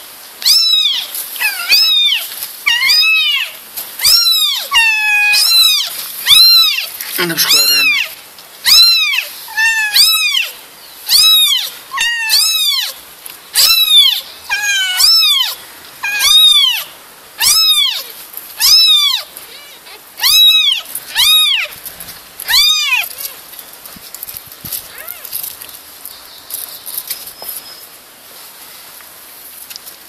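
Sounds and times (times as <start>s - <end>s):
kitten meowing: 0.4s - 10.5s, 11.1s - 13.0s, 13.6s - 21.7s, 22.5s - 23.4s.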